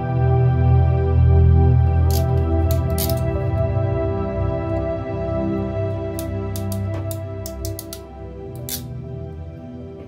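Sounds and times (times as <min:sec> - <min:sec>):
soft instrumental music: 0:00.0 - 0:10.0
ratchet crimping tool clicks: 0:02.1 - 0:03.3, 0:06.2 - 0:08.9.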